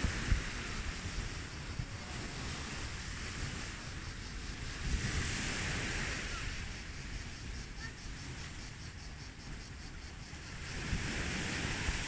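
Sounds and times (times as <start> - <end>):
waves washing on shore: 0.0 - 12.0
wind buffeting microphone: 0.0 - 12.0.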